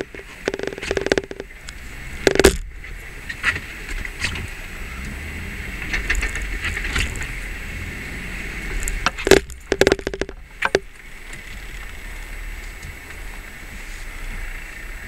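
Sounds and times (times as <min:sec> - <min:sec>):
camera clicking against windshield: 0:00.0 - 0:01.5, 0:09.3 - 0:10.8
vehicle rumbling on rough trail: 0:00.0 - 0:15.0.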